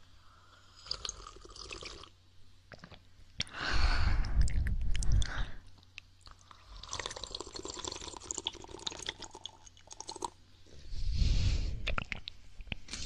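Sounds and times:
wet mouth clicks and smacks: 0:04.2 - 0:06.4, 0:11.8 - 0:12.8.

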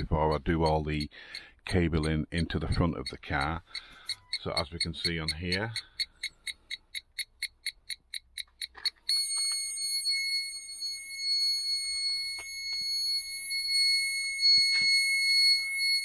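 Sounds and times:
continuous high warning tone: 0:00.0 - 0:16.0
parking sensor buzzer beeping: 0:03.4 - 0:16.0.

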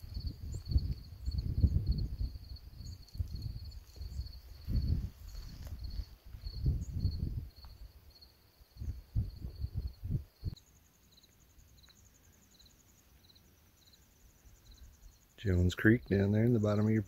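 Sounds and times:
wind rumbling on microphone: 0:00.0 - 0:08.0, 0:08.7 - 0:10.6
crickets chirping: 0:00.0 - 0:17.0
fast insect trill: 0:00.0 - 0:17.0.

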